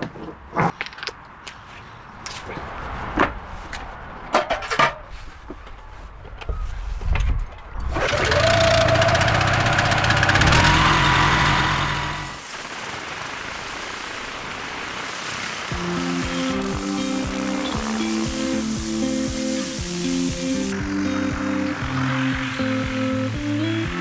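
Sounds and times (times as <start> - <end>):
engine whine: 7.9 - 12.4, 15.7 - 24.0
pressure washer engine running: 8.0 - 12.7, 15.4 - 24.0.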